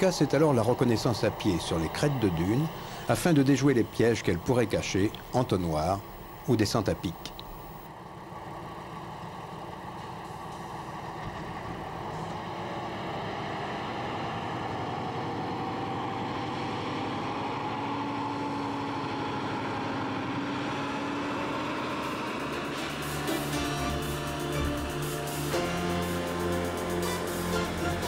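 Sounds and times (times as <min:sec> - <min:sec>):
truck diesel engine: 0:00.0 - 0:28.0.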